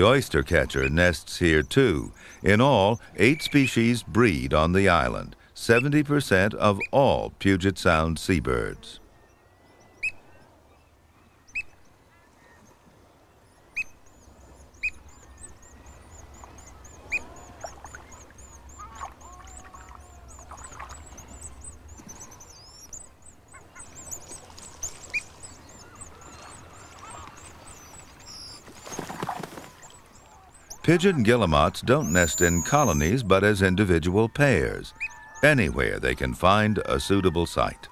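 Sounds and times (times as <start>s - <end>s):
oystercatcher sharp calls: 24.8s - 33.2s
bird squawks: 25.1s - 33.3s.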